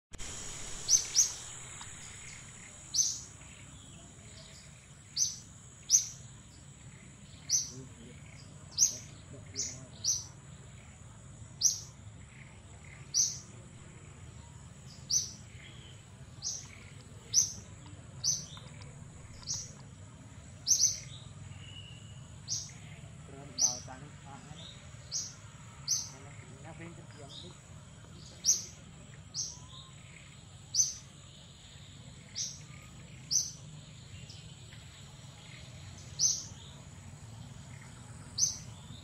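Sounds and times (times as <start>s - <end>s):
thin high-pitched whine: 0.1s - 11.0s
bird chirping: 0.2s - 39.0s.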